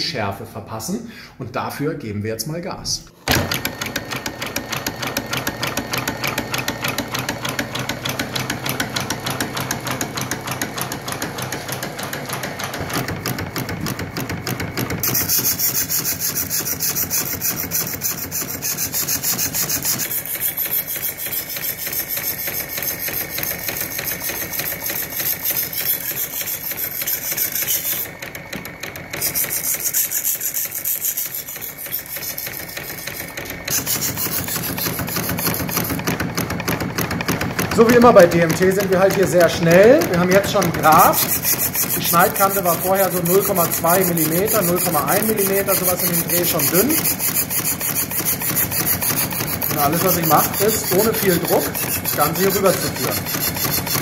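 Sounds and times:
machine rhythmic clatter: 0:03.3 - 0:54.0
knife grinding scraping hiss: 0:15.0 - 0:28.1, 0:29.2 - 0:36.0, 0:40.9 - 0:54.0.

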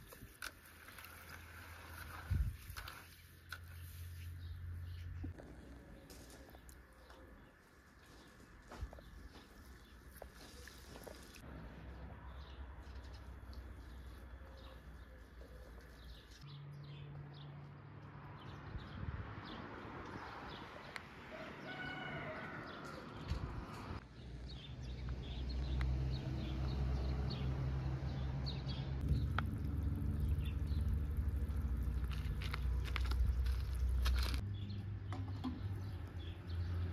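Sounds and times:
rooster crowing: 0:21.3 - 0:23.2
low steady rumble: 0:29.0 - 0:34.4.

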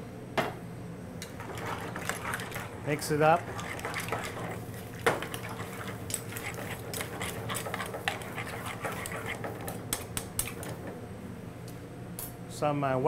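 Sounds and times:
spoon stirring and clicking on pan: 0:03.5 - 0:10.8.

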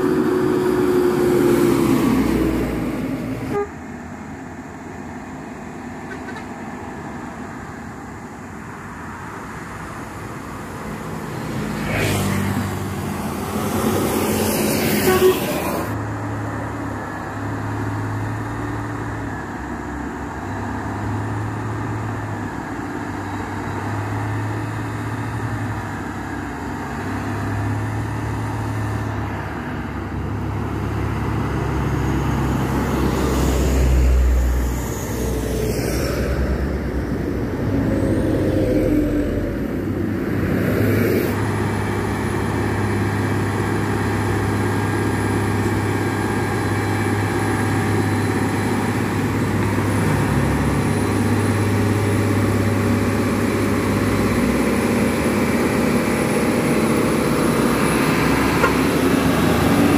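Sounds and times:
bus passing close: 0:00.0 - 0:59.9
heavy diesel trucks passing: 0:00.0 - 0:59.9
vehicle horn: 0:03.5 - 0:03.8, 0:14.9 - 0:15.9, 0:58.5 - 0:58.9.

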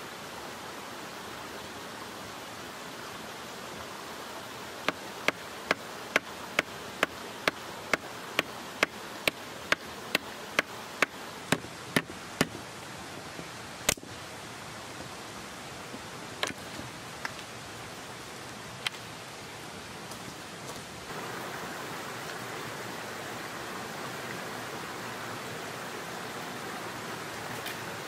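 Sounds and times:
mountain stream rushing: 0:00.0 - 0:28.0
hatchet chopping a branch: 0:13.9 - 0:14.1
sharp wood crack: 0:13.9 - 0:14.1.

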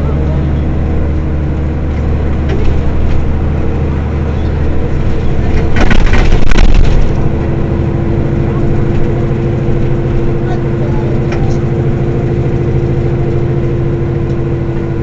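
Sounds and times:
bus engine idling: 0:00.0 - 0:15.0
loud burst of noise: 0:05.5 - 0:07.3.

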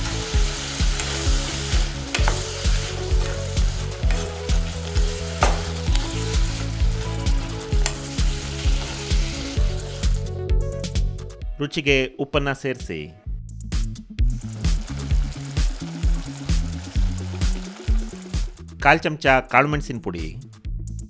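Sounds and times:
spatula stirring in a pan: 0:00.0 - 0:10.3
vegetables sizzling in a pan: 0:00.0 - 0:10.3, 0:14.4 - 0:18.6
background music with steady beat: 0:00.0 - 0:21.0.

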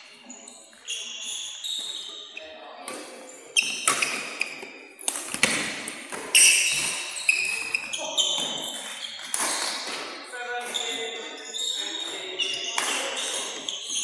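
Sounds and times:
shoes squeaking on court: 0:00.0 - 0:14.0
rackets hitting shuttlecock: 0:02.9 - 0:11.2, 0:12.5 - 0:14.0.

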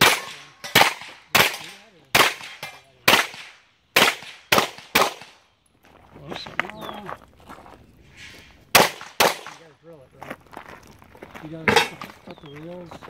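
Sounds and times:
handgun shots: 0:00.0 - 0:05.4, 0:08.8 - 0:09.6.

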